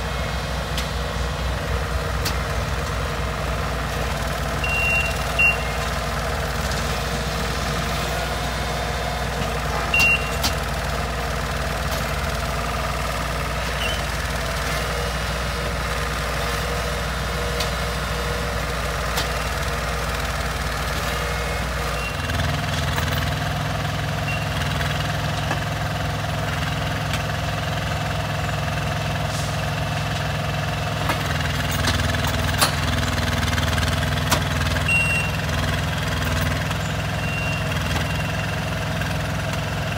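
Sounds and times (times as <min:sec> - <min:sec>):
short beeps: 0:04.6 - 0:05.8, 0:09.9 - 0:10.4, 0:34.8 - 0:35.4, 0:37.2 - 0:37.6.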